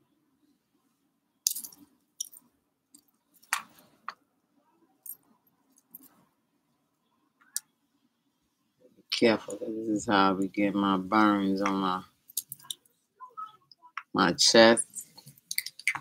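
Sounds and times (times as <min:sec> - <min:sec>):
metal jewelry clicking and clinking: 0:01.4 - 0:04.2, 0:05.0 - 0:06.2, 0:12.3 - 0:12.9, 0:14.9 - 0:16.0.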